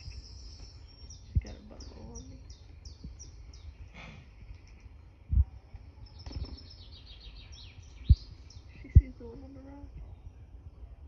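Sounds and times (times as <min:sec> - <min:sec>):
birdsong through speakers: 0:00.0 - 0:11.0
dull low thumps: 0:07.8 - 0:09.2.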